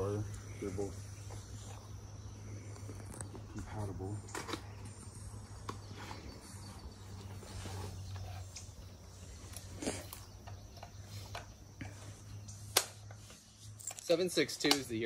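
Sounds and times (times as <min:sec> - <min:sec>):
low steady hum: 0:00.0 - 0:14.9
ammunition boxes clicking: 0:13.9 - 0:15.0.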